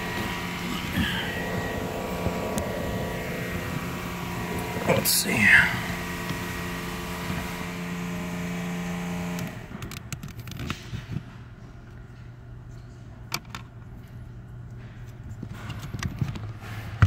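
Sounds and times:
mechanical hum in car cabin: 0.0 - 17.0.

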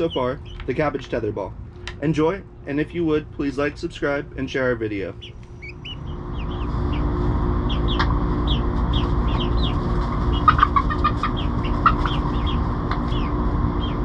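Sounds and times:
hens clucking: 0.0 - 1.0, 5.0 - 14.0.

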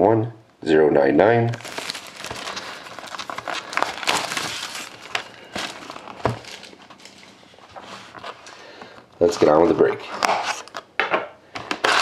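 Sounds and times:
plastic shrink-wrap crinkling: 1.5 - 9.6.

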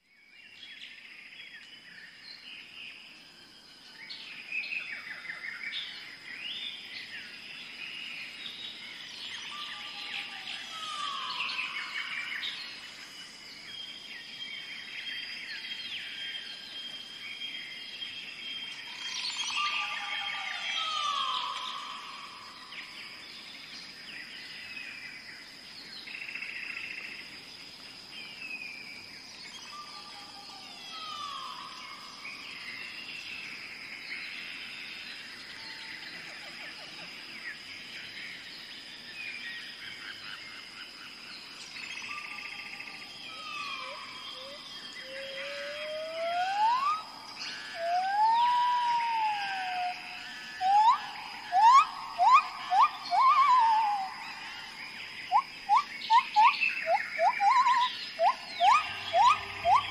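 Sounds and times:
insect drone: 0.0 - 59.9
birds calling and chirping: 4.0 - 59.9
descending bird call: 43.2 - 54.5, 55.3 - 59.9.

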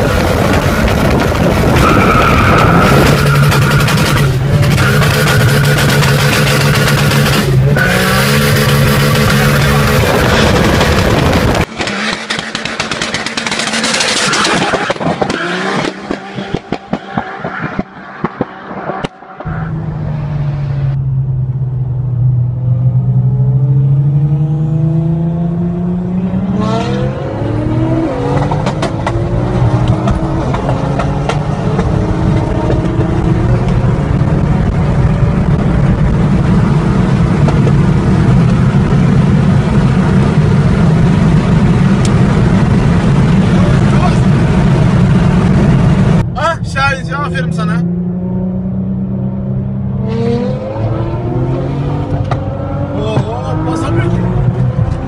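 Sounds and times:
car engine accelerating: 0.0 - 55.0
wind and road noise: 0.0 - 55.0
car passing: 41.3 - 55.0.

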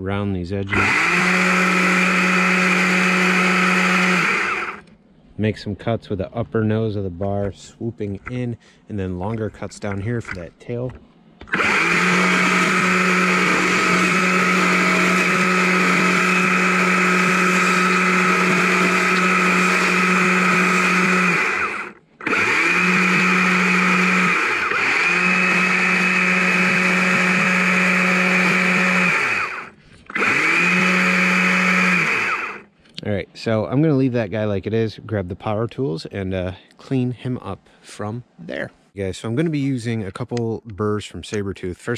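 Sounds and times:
electric chainsaw carving wood: 0.7 - 4.8, 11.4 - 32.7.

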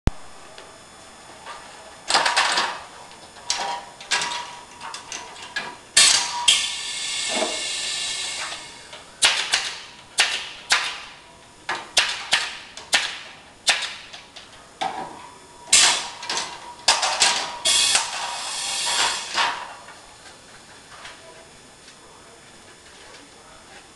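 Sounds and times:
steady hiss: 6.0 - 8.9, 17.6 - 19.8.

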